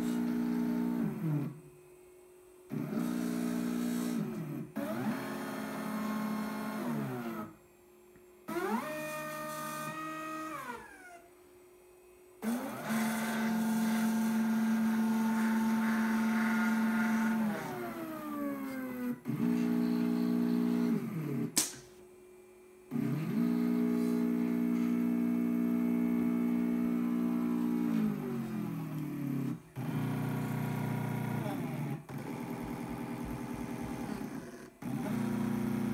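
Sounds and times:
sharp click: 21.6 - 22.0.

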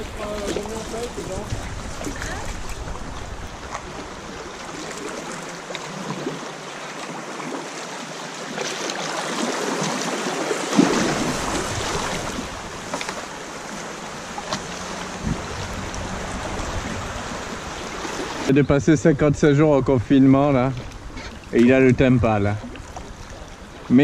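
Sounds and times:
paddle splashing water: 0.0 - 18.6, 20.0 - 24.0
river rapids rushing: 0.0 - 18.6.

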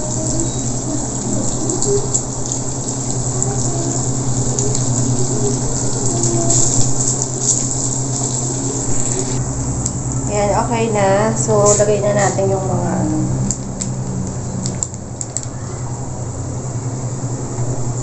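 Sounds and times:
ham sizzling in a skillet: 0.0 - 9.4
steady low hum: 0.0 - 18.0.

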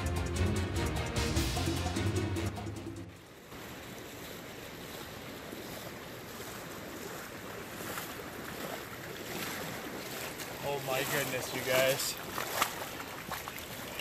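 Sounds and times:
creek current rushing: 3.0 - 14.0
water splashing around legs: 3.4 - 14.0.

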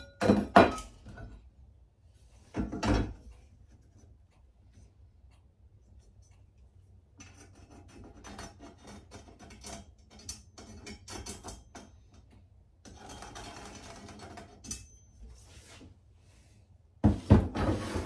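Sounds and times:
pencil scratching on wood: 7.3 - 9.6.

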